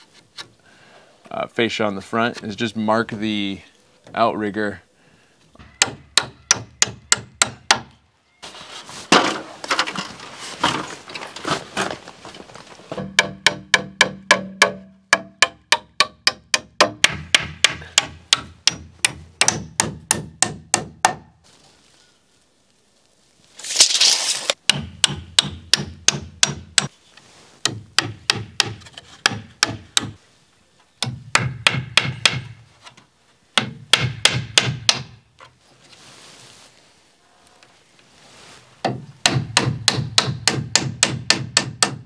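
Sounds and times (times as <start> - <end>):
hammer driving nails into wood: 13.0 - 21.2, 31.0 - 32.6, 33.6 - 35.2, 38.8 - 42.0.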